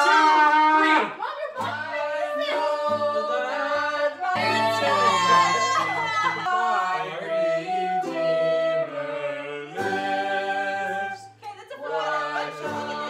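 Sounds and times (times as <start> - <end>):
acoustic guitar: 0.0 - 13.0
voices singing together: 0.0 - 13.0
flute: 4.4 - 11.4.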